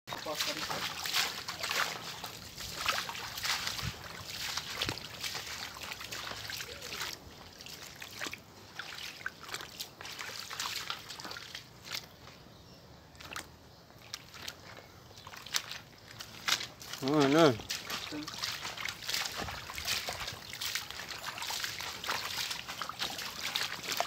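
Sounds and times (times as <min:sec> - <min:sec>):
footsteps splashing through stream: 0:00.1 - 0:12.4, 0:13.1 - 0:24.0.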